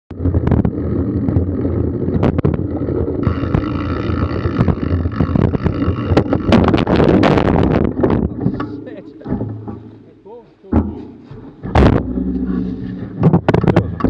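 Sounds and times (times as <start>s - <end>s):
bike rattling and knocking: 0.1s - 14.0s
tyres rumbling on dirt trail: 0.1s - 14.0s
high buzz: 2.1s - 8.2s.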